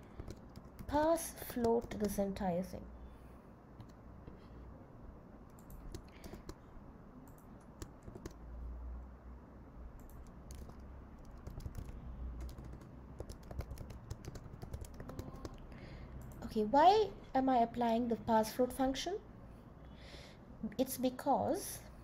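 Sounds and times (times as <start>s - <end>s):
typing on computer keyboard: 0.0s - 2.4s, 5.5s - 6.6s, 7.2s - 8.4s, 10.0s - 16.4s.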